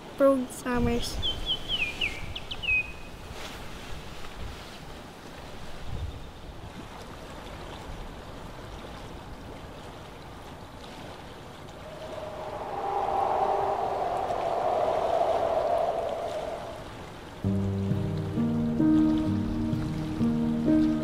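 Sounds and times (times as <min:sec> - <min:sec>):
wind: 0:00.0 - 0:21.0
soft held synth pad: 0:11.8 - 0:21.0.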